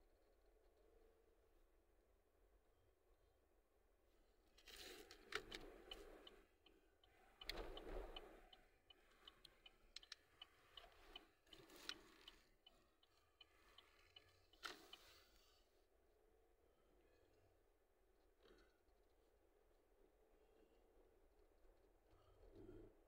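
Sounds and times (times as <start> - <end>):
turn signal ticking: 5.3 - 15.6.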